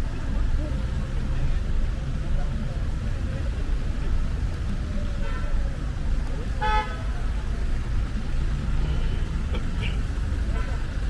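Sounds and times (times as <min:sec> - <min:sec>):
traffic engines idling: 0:00.0 - 0:11.0
car horn toot: 0:06.6 - 0:07.0.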